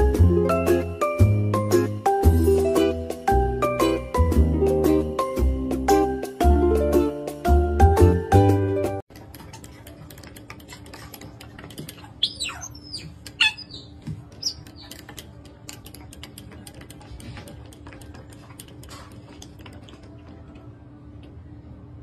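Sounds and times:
otters squeaking: 11.7 - 15.3.

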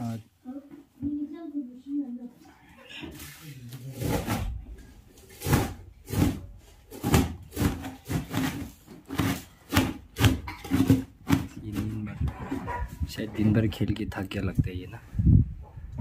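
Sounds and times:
dough being kneaded by hand: 3.1 - 13.1.

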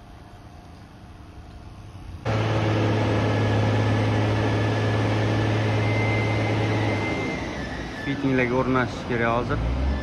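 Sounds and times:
thin high whine: 1.8 - 8.9
diesel engine running: 2.3 - 10.0.

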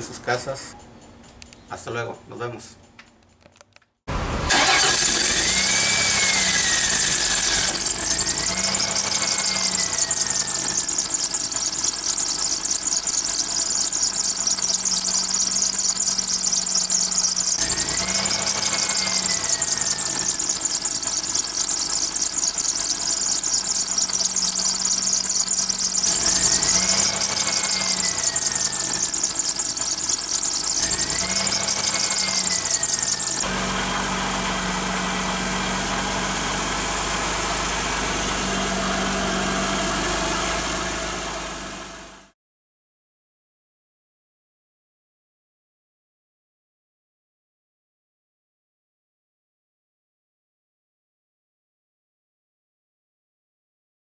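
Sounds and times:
car engine running: 4.1 - 42.3
drive belt squealing: 4.5 - 36.4.

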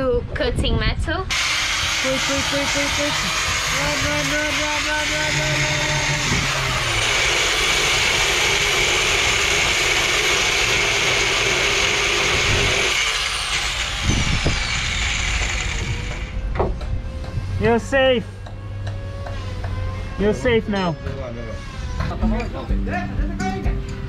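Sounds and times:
grinder disc winding down: 1.3 - 16.4
angle grinder cutting metal: 1.3 - 16.5.

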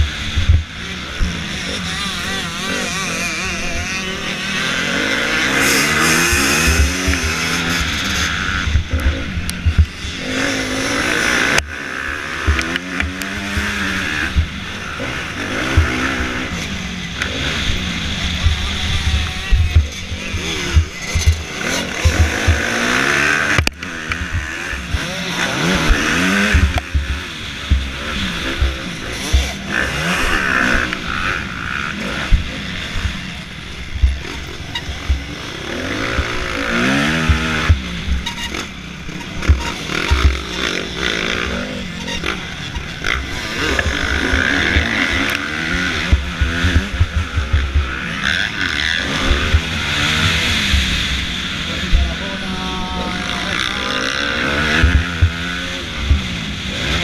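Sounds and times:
motocross bike engine revving: 0.0 - 57.0
other dirt bike engines: 0.0 - 57.0.

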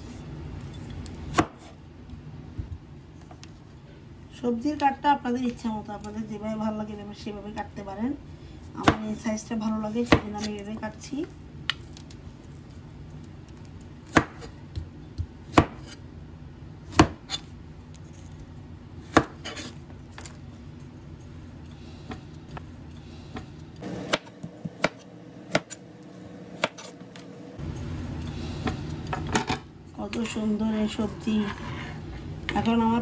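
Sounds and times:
knife chopping on cutting board: 1.3 - 1.7, 14.1 - 16.0, 16.9 - 17.5, 23.3 - 25.8, 26.5 - 27.2.

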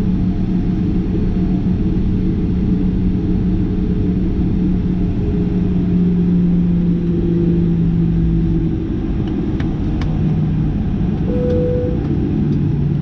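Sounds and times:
jet engines idling: 8.3 - 13.0
steady hums: 11.2 - 12.8.

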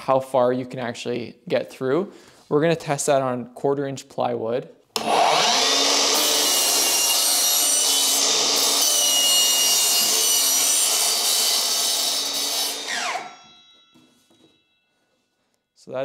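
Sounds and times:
miter saw whining through plywood: 5.0 - 13.6
saw blade braking to a stop: 5.0 - 13.6.

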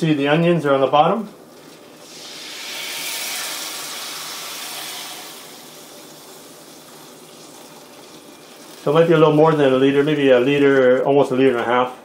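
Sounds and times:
water pouring and splashing in pan: 5.3 - 10.5.

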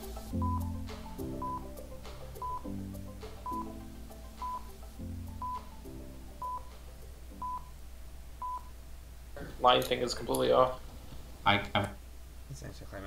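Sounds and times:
low synth music chords: 0.0 - 7.5.

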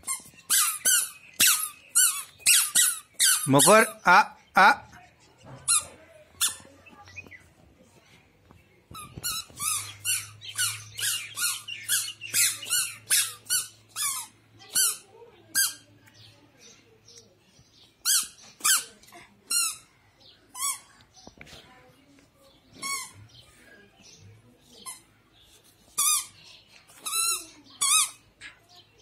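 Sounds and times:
squeaker shoes chirping: 0.0 - 4.4, 5.0 - 7.6, 8.4 - 15.9, 17.8 - 19.9, 20.5 - 21.0, 22.7 - 23.5, 24.7 - 29.0.

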